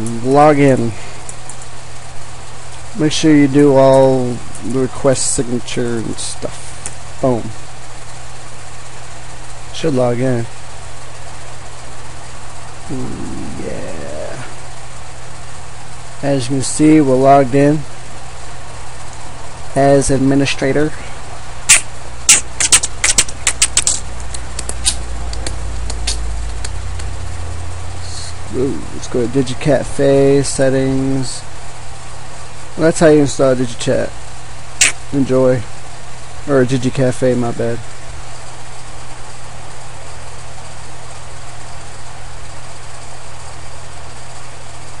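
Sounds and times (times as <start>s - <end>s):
steady low hum: 0.0s - 45.0s
microphone hiss: 12.6s - 18.2s, 19.5s - 38.0s.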